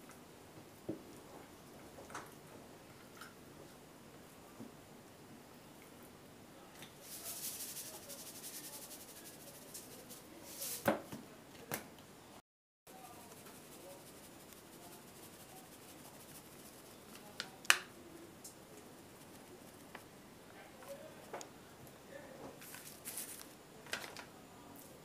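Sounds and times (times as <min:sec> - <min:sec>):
salt sprinkling: 0:07.0 - 0:10.8, 0:12.9 - 0:17.6, 0:18.4 - 0:20.1, 0:22.6 - 0:23.5.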